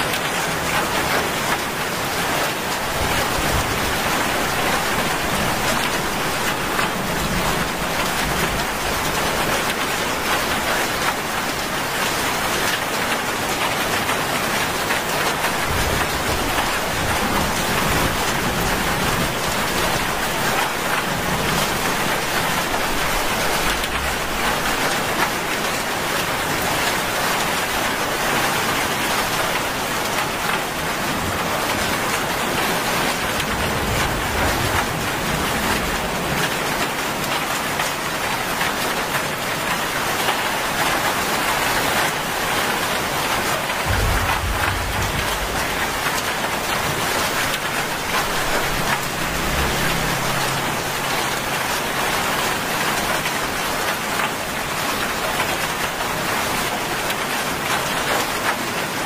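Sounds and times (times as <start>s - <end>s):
heavy rain on road: 0.0s - 59.0s
faint low rumbles: 43.8s - 50.4s.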